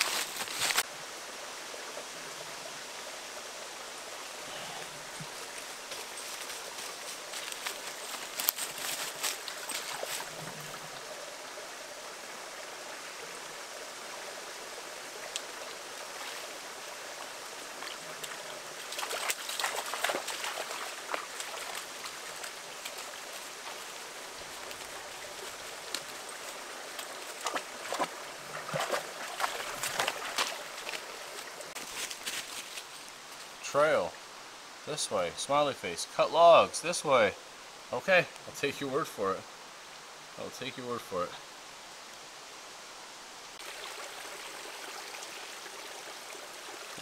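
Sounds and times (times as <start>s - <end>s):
footsteps on leaves and twigs: 0.0s - 0.9s, 5.1s - 10.6s, 17.8s - 33.6s
forest stream rushing: 0.0s - 47.0s.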